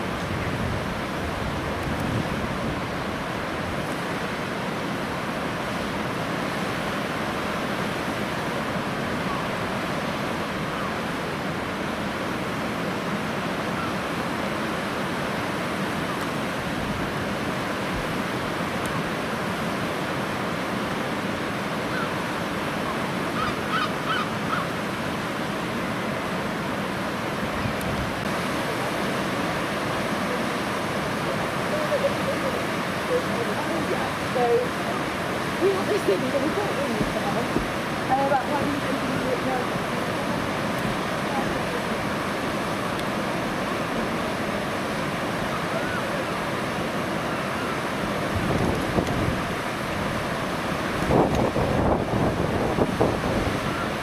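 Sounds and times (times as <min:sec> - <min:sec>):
river water rushing: 0:00.0 - 0:54.0
waterbird short calls: 0:22.8 - 0:24.7.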